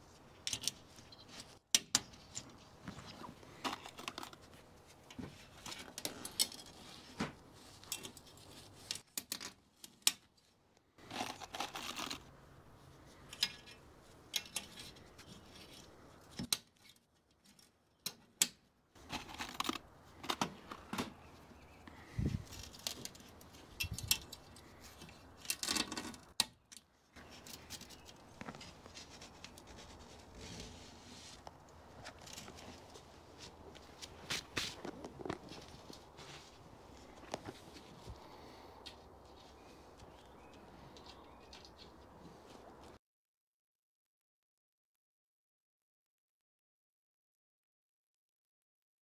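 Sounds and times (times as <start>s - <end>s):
clicks and knocks of tools: 0.4s - 2.6s, 13.2s - 21.2s, 22.5s - 28.8s
rasping tearing sounds: 11.0s - 12.3s.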